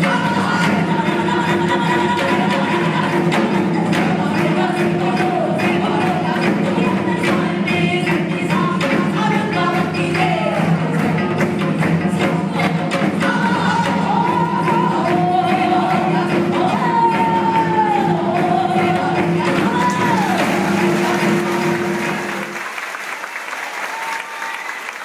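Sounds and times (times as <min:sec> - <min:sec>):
woman singing sliding notes: 0:00.0 - 0:11.3, 0:12.0 - 0:22.6
drum strikes: 0:00.0 - 0:22.7
audience applause: 0:19.9 - 0:25.0.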